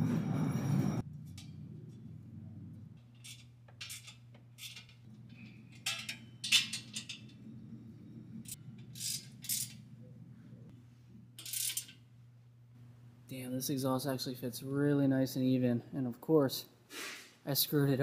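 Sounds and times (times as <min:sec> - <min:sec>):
steady low hum: 0:00.0 - 0:18.0
metallic clinks and scrapes: 0:11.4 - 0:12.0.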